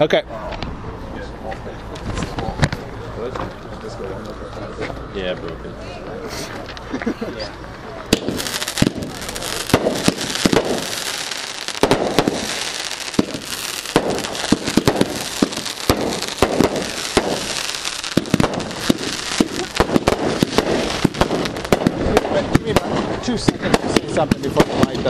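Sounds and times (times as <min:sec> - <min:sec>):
fireworks loud reports: 0:08.0 - 0:25.0
fireworks popping and crackling: 0:08.0 - 0:25.0
fireworks fizzing hiss: 0:08.1 - 0:25.0.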